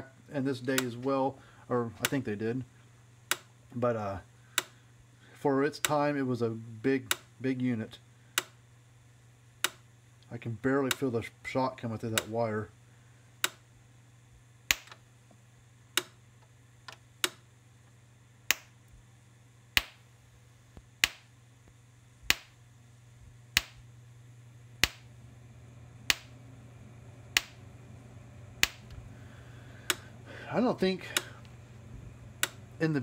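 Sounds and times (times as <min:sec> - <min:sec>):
steady low hum: 0:00.0 - 0:33.0
electric fence pulse snap: 0:14.7 - 0:15.0, 0:22.2 - 0:22.6, 0:23.5 - 0:23.9, 0:24.8 - 0:25.1, 0:26.0 - 0:26.4, 0:27.3 - 0:27.7, 0:28.6 - 0:29.0.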